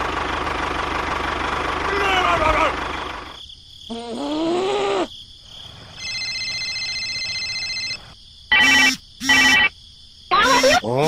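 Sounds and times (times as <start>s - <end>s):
electronic ringing tone: 6.0s - 9.7s.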